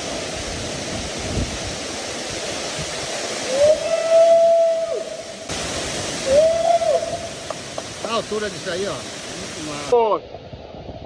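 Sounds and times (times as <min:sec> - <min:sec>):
waterfall pouring into pool: 0:00.0 - 0:10.2
man's long held cry: 0:03.5 - 0:05.2, 0:06.2 - 0:07.2.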